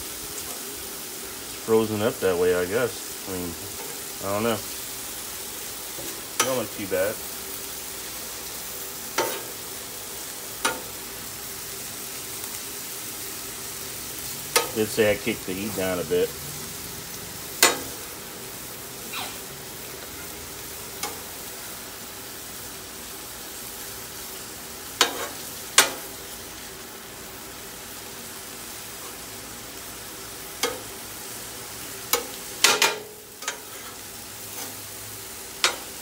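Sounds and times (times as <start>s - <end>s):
beef sizzling on a griddle: 0.0s - 36.0s
metal spatula clacking on griddle: 9.1s - 9.5s, 10.6s - 11.0s, 14.5s - 14.8s, 17.6s - 18.0s, 21.0s - 21.2s, 25.0s - 26.1s, 30.6s - 31.0s, 32.1s - 34.8s, 35.6s - 36.0s.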